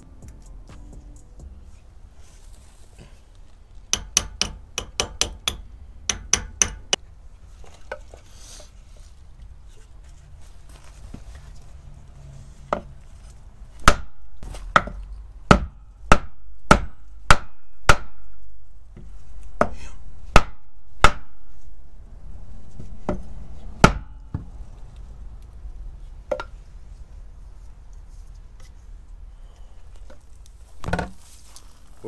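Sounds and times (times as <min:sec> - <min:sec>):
hammer striking wooden board: 0:03.9 - 0:07.0, 0:13.8 - 0:18.3, 0:19.6 - 0:21.4, 0:23.8 - 0:24.4.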